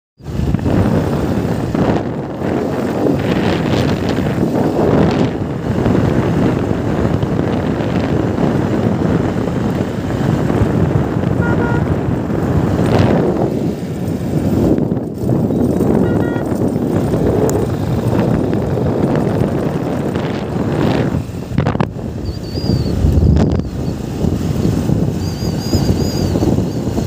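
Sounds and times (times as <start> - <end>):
vehicle rumble: 0.2 - 27.0
wind buffeting microphone: 0.2 - 27.0.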